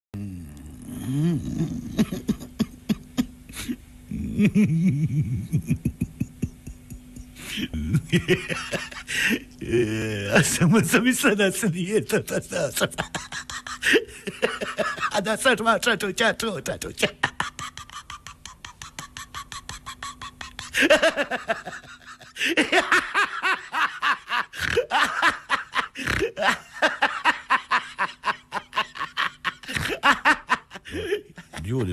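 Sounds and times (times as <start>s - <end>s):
woman laughing hard: 1.7s - 9.9s, 12.5s - 15.2s, 17.0s - 31.9s.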